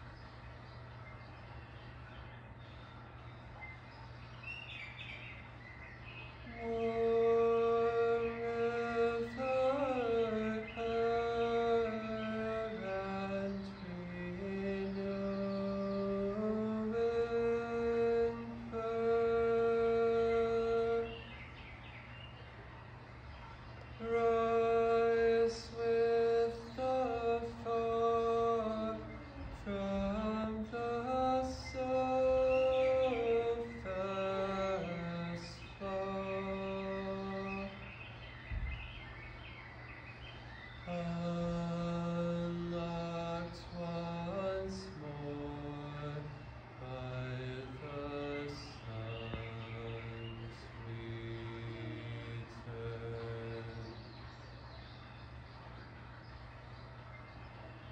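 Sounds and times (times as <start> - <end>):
man singing wordless held notes: 6.2 - 21.6, 23.8 - 38.6, 40.8 - 54.3.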